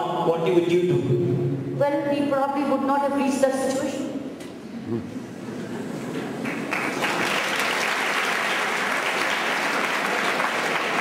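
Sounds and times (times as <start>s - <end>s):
audience applauding: 6.1s - 11.0s.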